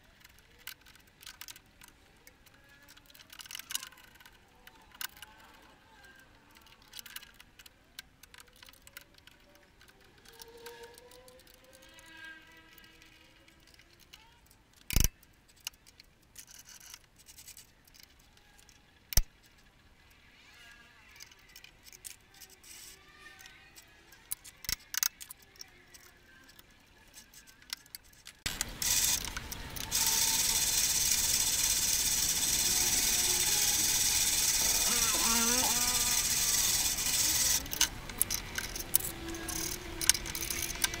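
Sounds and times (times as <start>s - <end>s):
lathe motor running: 29.9s - 37.6s.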